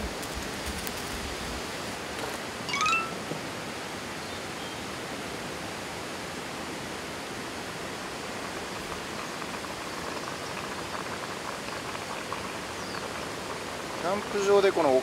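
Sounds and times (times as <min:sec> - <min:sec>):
rice pot bubbling: 0:07.6 - 0:15.0.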